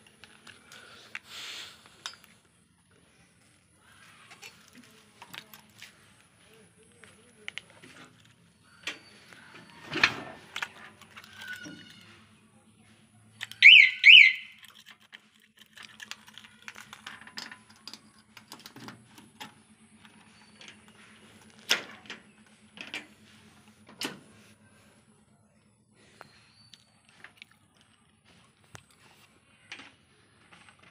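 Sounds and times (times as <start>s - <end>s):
clicks and knocks of handling: 4.3s - 6.2s, 6.9s - 12.1s, 14.5s - 23.2s
security alarm siren chirps: 13.5s - 14.6s.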